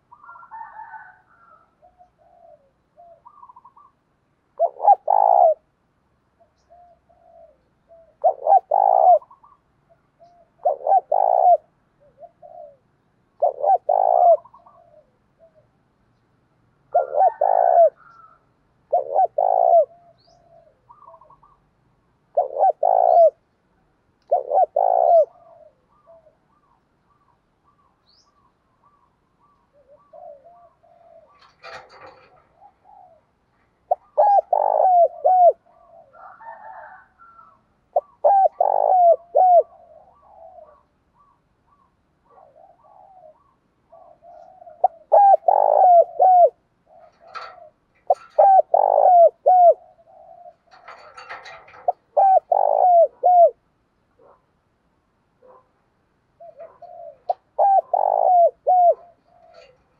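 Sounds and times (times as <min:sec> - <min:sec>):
faint bird chirps: 0:00.0 - 0:04.0, 0:17.0 - 0:21.8
dove cooing: 0:00.0 - 0:05.7, 0:06.4 - 0:15.8, 0:16.8 - 0:21.7, 0:22.3 - 0:54.4, 0:56.3 - 0:59.9.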